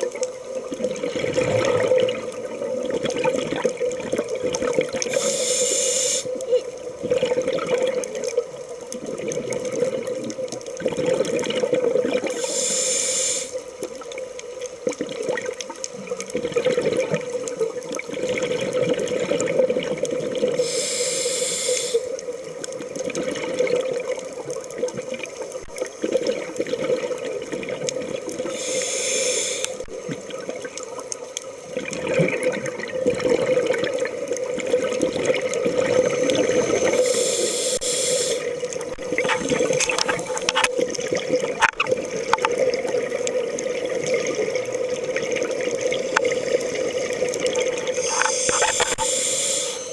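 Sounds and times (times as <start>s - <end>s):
bubbling water: 0.0s - 49.9s
regulator hiss: 5.0s - 6.4s, 12.3s - 13.8s, 20.5s - 22.3s, 28.4s - 30.0s, 35.9s - 40.6s, 47.8s - 49.9s
diver breathing through regulator: 5.1s - 6.3s, 12.3s - 13.6s, 20.6s - 22.2s, 28.5s - 29.9s, 36.2s - 38.6s, 47.9s - 49.9s.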